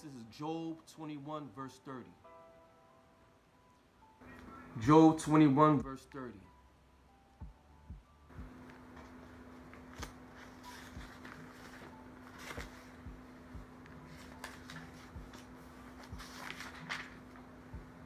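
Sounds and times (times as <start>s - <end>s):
faint steady hum: 0.0s - 18.0s
paper pages rustling: 8.6s - 17.6s.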